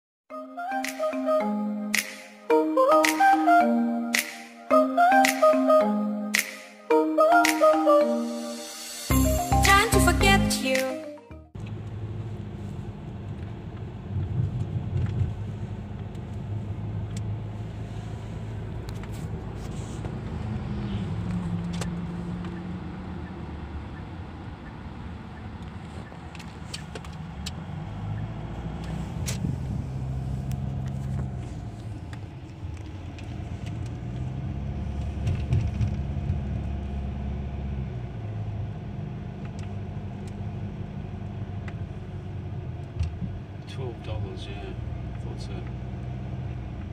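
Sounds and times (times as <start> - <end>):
car engine and tyre rumble: 11.5 - 46.9.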